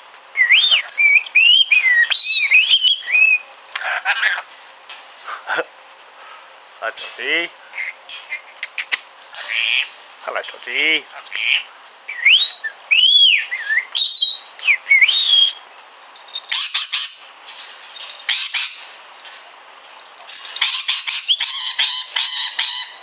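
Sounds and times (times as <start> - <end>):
lorikeet whistling and chattering: 0.4 - 4.4, 11.3 - 15.6, 18.3 - 18.8, 20.6 - 23.0.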